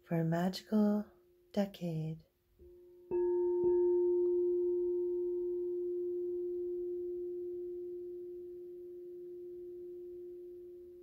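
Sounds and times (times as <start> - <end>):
struck metal bell ringing: 2.7 - 11.0.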